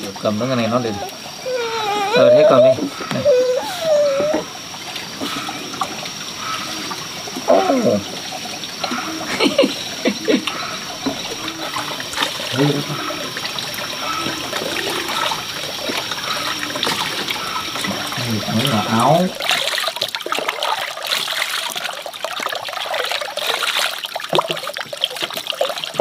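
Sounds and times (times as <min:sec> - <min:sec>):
water running: 0:00.0 - 0:26.0
short pitched calls: 0:00.7 - 0:04.5.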